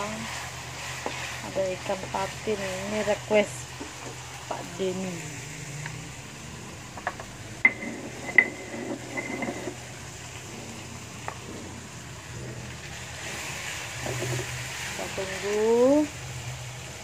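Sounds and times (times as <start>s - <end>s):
dishes clinking and knocking: 7.0s - 9.9s
utensils clattering: 7.0s - 9.9s.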